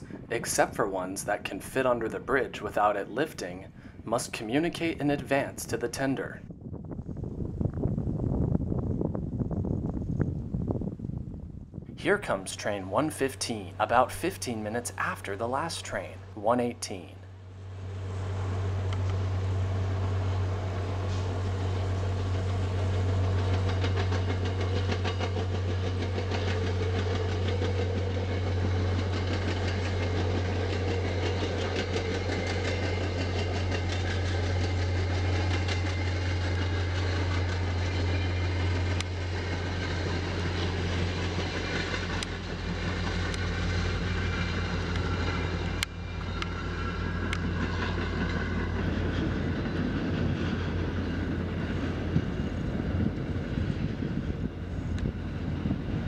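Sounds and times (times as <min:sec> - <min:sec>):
diesel locomotive drone: 0:00.0 - 0:56.0
rail and wheel noise: 0:00.0 - 0:56.0.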